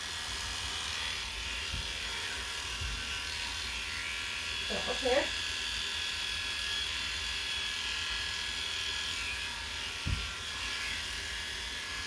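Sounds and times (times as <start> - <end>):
electric clippers running: 0.0 - 12.0
low thump: 10.0 - 10.3.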